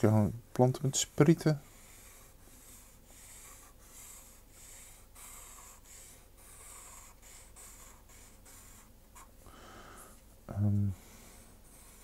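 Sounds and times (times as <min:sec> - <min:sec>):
pen scratching on paper: 0:01.7 - 0:09.3, 0:11.3 - 0:12.0.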